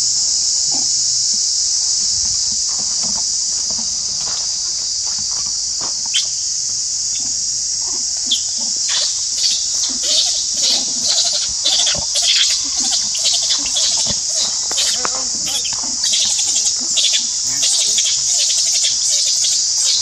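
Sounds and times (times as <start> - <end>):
insects droning: 0.0 - 20.0
high chirps and squeaks: 8.3 - 20.0.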